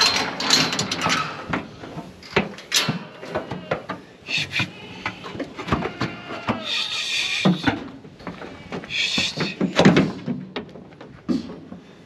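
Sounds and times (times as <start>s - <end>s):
metal gate scraping: 0.0s - 1.5s
wire crate rattling and clanking: 0.0s - 4.0s.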